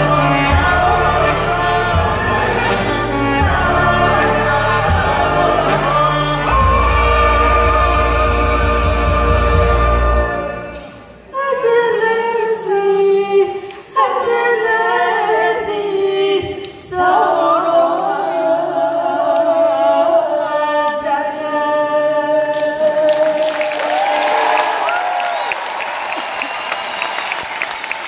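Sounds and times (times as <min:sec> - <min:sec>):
choir singing in harmony: 0:00.0 - 0:23.6
audience applause and cheering: 0:22.8 - 0:28.0.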